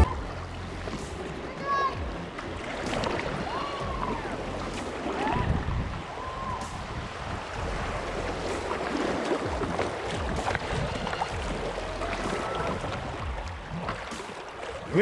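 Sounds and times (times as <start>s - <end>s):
river water rushing and splashing: 0.0s - 15.0s
wind buffeting microphone: 5.2s - 14.2s.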